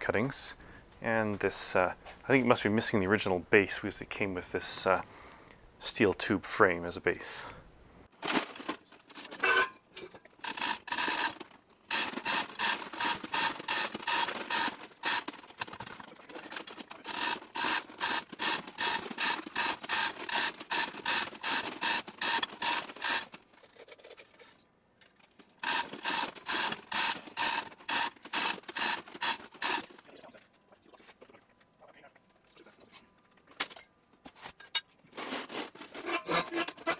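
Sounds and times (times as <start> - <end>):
chain hoist clicking and rattling: 10.4 - 23.4, 25.1 - 30.0.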